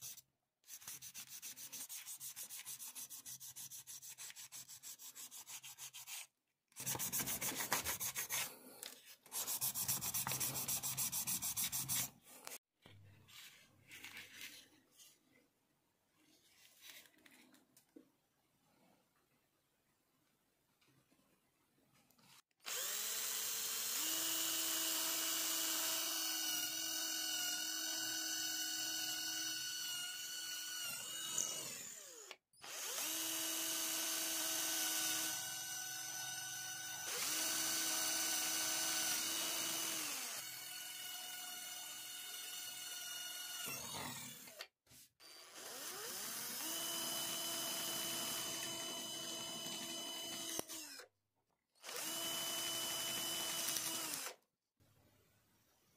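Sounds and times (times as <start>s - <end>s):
electric drill whining: 22.6s - 44.6s, 45.2s - 51.1s, 51.8s - 54.4s.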